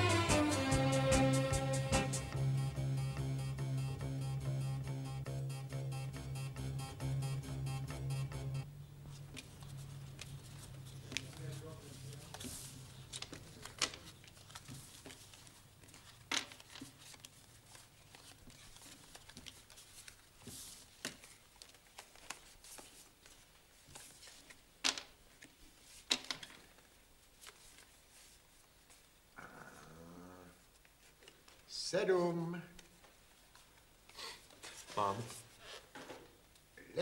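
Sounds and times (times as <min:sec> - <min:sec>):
cards rustling in hand: 0:09.0 - 0:29.1.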